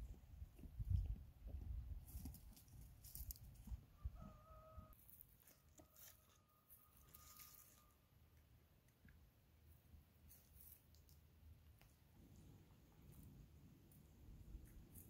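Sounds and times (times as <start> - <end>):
aluminium foil crinkling: 7.0 - 7.9.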